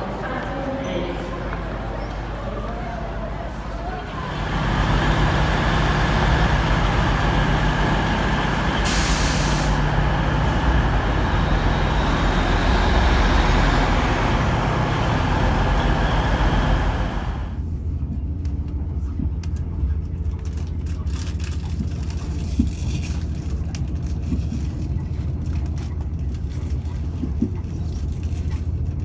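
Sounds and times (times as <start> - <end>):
train rumble under way: 3.8 - 19.8
diesel train engine running: 3.9 - 17.8
air hiss: 7.4 - 12.4.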